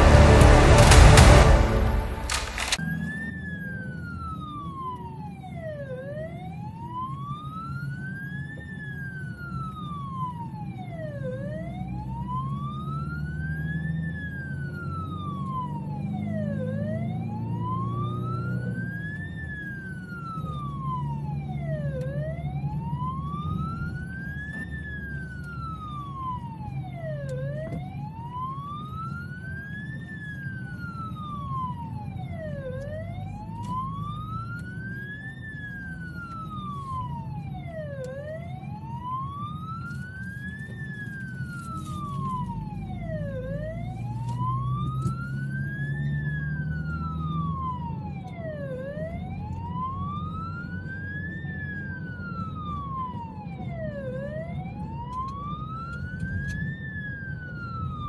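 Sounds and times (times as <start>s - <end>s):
engine and road noise: 0.0s - 58.0s
siren wailing: 0.0s - 58.0s.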